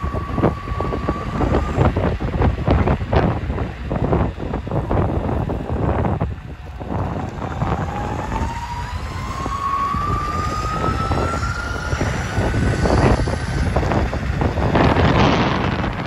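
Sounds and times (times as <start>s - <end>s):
electric motor whining: 0.0s - 3.4s, 4.9s - 16.0s
wind rumbling on microphone: 0.0s - 16.0s.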